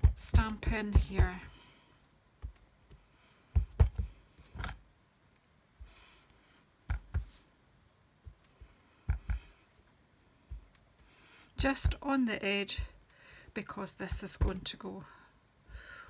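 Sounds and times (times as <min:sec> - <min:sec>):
stamp knocking on cardstock: 0:00.0 - 0:01.5, 0:03.6 - 0:04.1, 0:11.6 - 0:12.0, 0:14.1 - 0:14.6.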